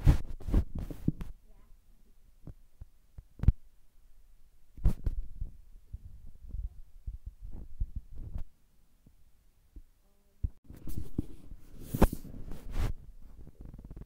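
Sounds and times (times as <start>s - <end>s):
rustling: 10.7s - 14.0s.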